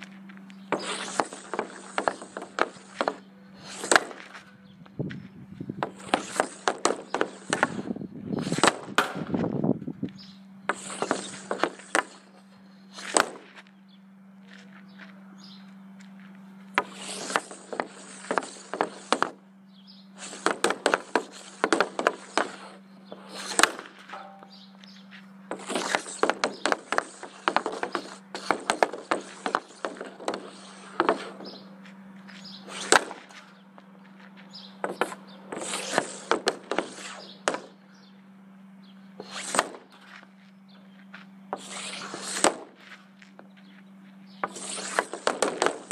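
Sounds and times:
hockey stick clicking and scraping pucks: 0:00.7 - 0:04.4, 0:05.8 - 0:09.2, 0:10.7 - 0:12.3, 0:13.0 - 0:13.6, 0:16.8 - 0:19.4, 0:20.2 - 0:24.4, 0:25.5 - 0:31.6, 0:32.4 - 0:33.5, 0:34.8 - 0:37.7, 0:39.2 - 0:40.3, 0:41.6 - 0:43.0, 0:44.4 - 0:45.9
puck shot cracks: 0:08.5 - 0:09.3, 0:13.0 - 0:13.6, 0:20.3 - 0:22.7, 0:23.3 - 0:24.6, 0:32.7 - 0:33.4, 0:41.6 - 0:42.8, 0:44.4 - 0:45.9.

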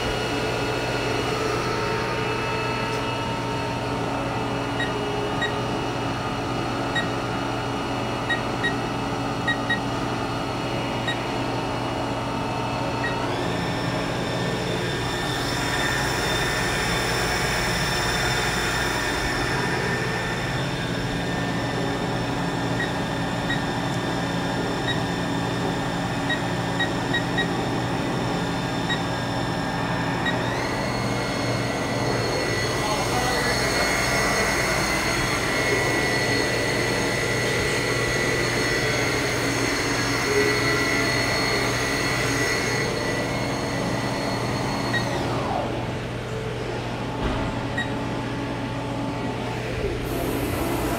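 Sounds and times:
machining center whining: 0:00.0 - 0:50.9
keypad beeps: 0:04.8 - 0:05.6, 0:06.9 - 0:07.1, 0:08.3 - 0:08.8, 0:09.4 - 0:09.9, 0:11.0 - 0:11.2, 0:26.3 - 0:27.6.

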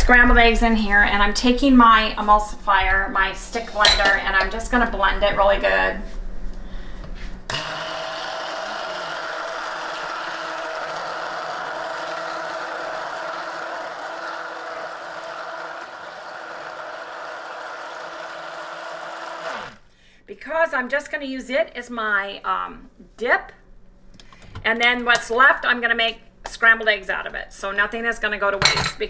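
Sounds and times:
stick blender humming: 0:07.5 - 0:19.9.

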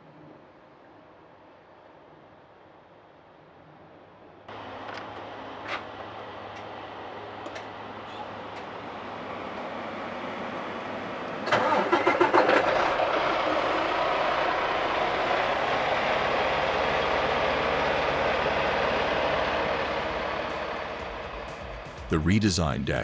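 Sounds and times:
diesel engine idling: 0:04.5 - 0:23.0
truck engine cranking: 0:11.4 - 0:22.1.

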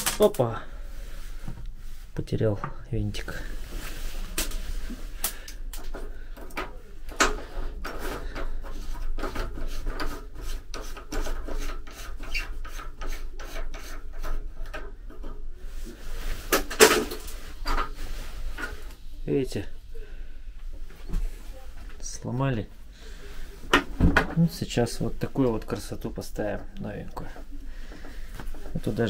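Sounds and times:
hands rubbing and scraping fixture: 0:05.8 - 0:19.2.

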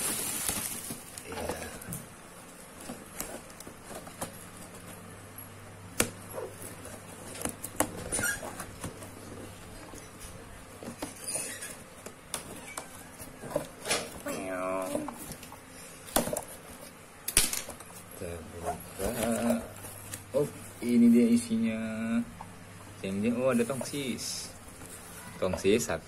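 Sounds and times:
cardboard rustling and clicking: 0:02.7 - 0:05.1.

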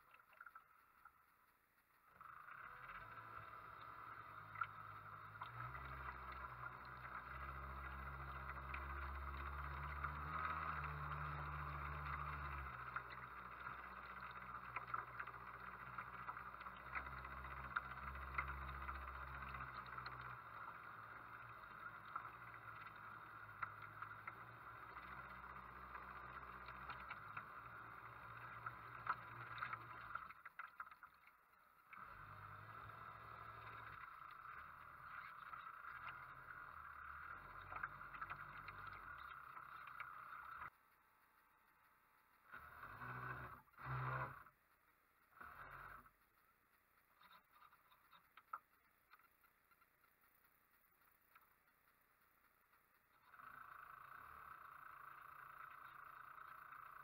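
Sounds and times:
small splashes: 0:02.0 - 0:40.7.

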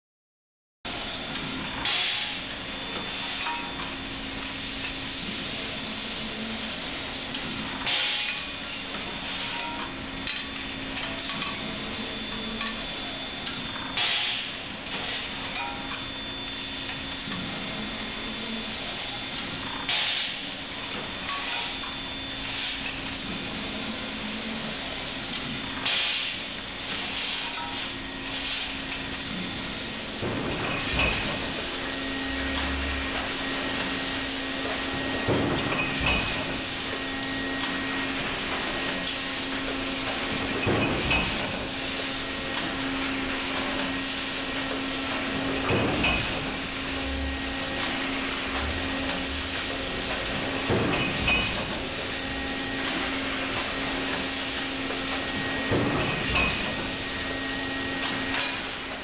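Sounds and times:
machinery humming: 0:00.9 - 0:59.0
hissing clattering machine stroke: 0:01.3 - 0:59.0.

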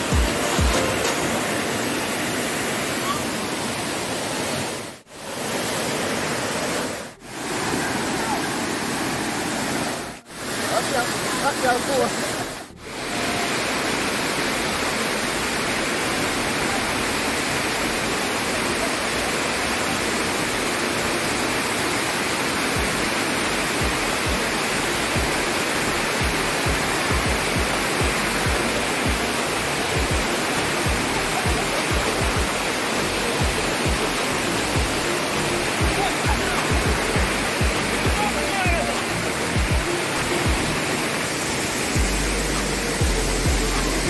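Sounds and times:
waterfall rushing: 0:00.0 - 0:44.0.

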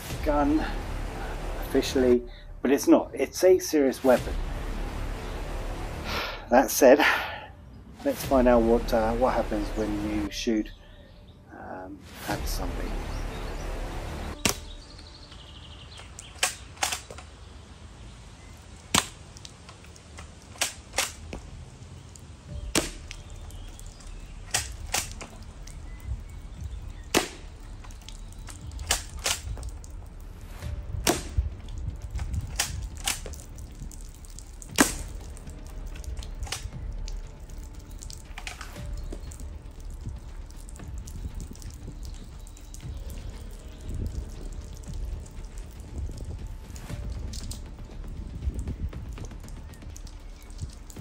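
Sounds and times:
airsoft rifle shot crack: 0:18.9 - 0:19.2, 0:31.1 - 0:31.4.

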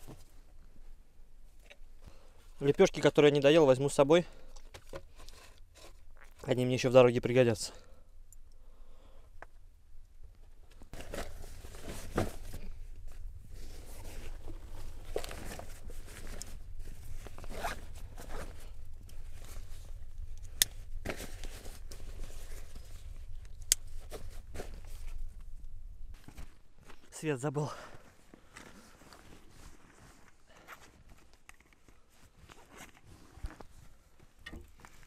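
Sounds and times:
belongings rustling and crinkling: 0:00.0 - 0:07.7, 0:10.2 - 0:35.0.

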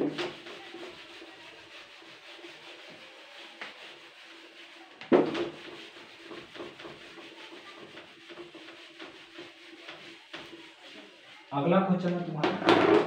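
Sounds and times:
duster wiping a whiteboard: 0:00.0 - 0:13.0
knock against whiteboard: 0:05.0 - 0:05.6.

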